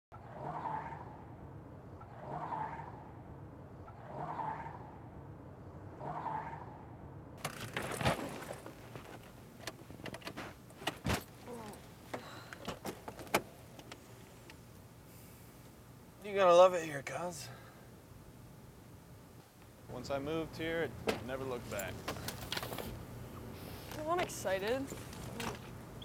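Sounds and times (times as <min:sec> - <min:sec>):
steady low hum: 0:00.2 - 0:26.0
clicks knocks and jangling in a car: 0:07.4 - 0:14.0, 0:21.0 - 0:22.9.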